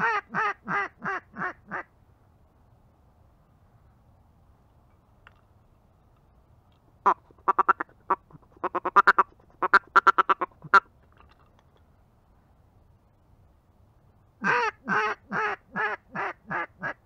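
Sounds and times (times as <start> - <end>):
duck quacking: 7.0 - 10.9, 14.4 - 17.0.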